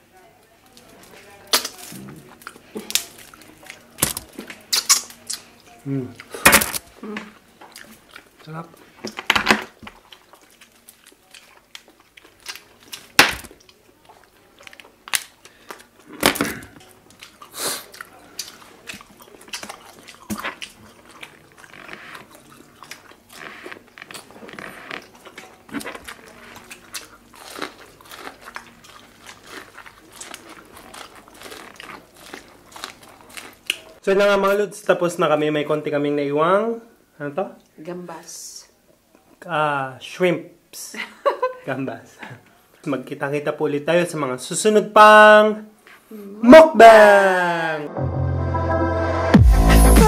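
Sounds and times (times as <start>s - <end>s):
chewing and crunching food: 0.6s - 34.0s.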